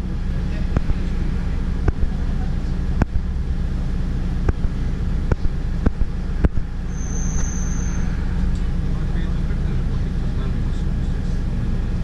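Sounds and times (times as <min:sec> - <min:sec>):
bus engine rumble: 0:00.0 - 0:12.0.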